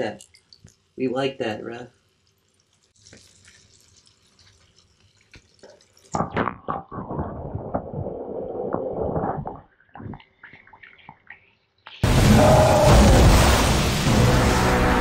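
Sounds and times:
water splashing: 1.9s - 7.3s, 12.0s - 15.0s
muffled underwater churning: 12.0s - 15.0s.

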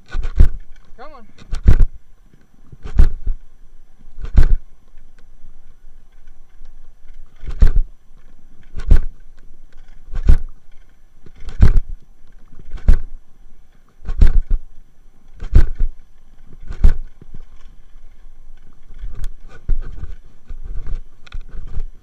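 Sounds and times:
sharp knock and rattle: 0.0s - 0.8s, 1.4s - 1.9s, 11.3s - 11.9s, 15.4s - 15.9s
bicycle tyres rumbling on dirt: 0.0s - 22.0s
wind: 0.0s - 22.0s.

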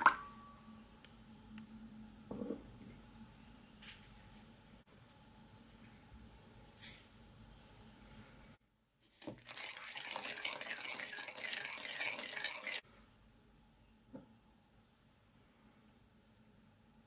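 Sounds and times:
spoon stirring in ceramic bowl: 9.1s - 12.8s.

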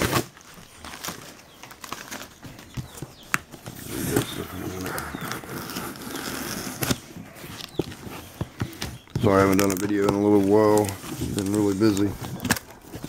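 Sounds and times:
rubbing and scraping: 2.7s - 13.0s.

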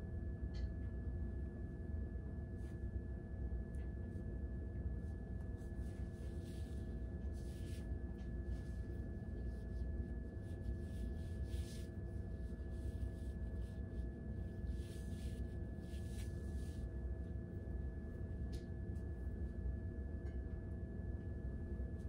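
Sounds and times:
low hum with faint whining: 0.0s - 22.0s
soft rustles: 5.1s - 17.0s.

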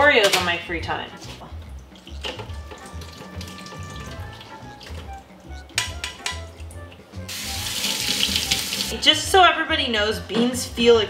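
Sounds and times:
background music with beat: 1.5s - 9.1s
liquid splashing in sink: 1.6s - 6.5s, 7.3s - 9.0s
pan knocking: 5.7s - 6.5s.

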